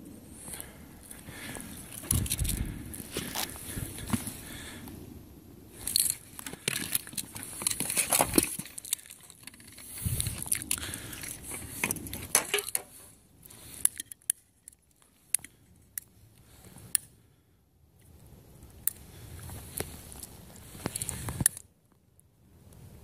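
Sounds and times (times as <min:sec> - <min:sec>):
plastic helmet scraping on paving: 0:06.1 - 0:10.7.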